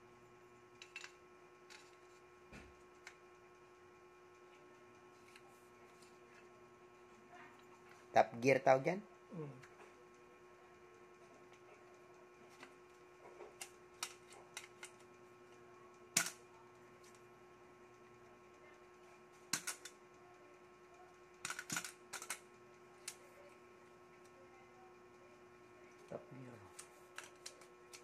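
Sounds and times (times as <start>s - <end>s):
faint steady hum: 0.0s - 28.0s
plastic and metal parts clicking: 19.5s - 20.0s, 21.4s - 22.4s, 26.8s - 28.0s.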